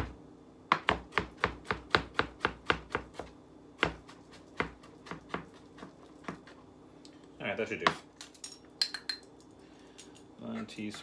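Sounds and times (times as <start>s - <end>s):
knife chopping on wooden board: 0.0s - 6.6s.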